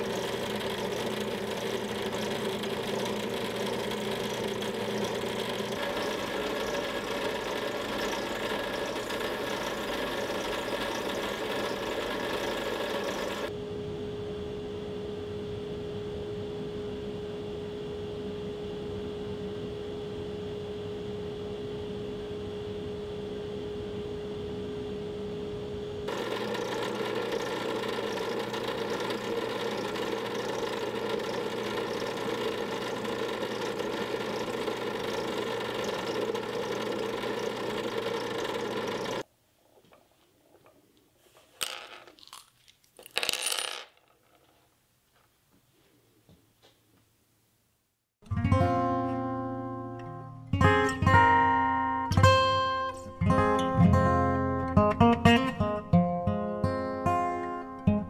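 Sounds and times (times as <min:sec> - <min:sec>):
drill press motor hum: 0:00.0 - 0:13.5, 0:26.0 - 0:39.3
sandpaper hissing on spinning wood: 0:00.0 - 0:13.5.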